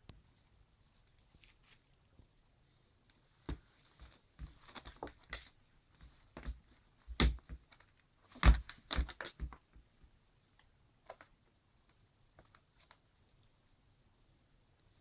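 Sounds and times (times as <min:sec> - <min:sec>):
kitten claws scrabbling on plastic basket: 0:03.6 - 0:09.7.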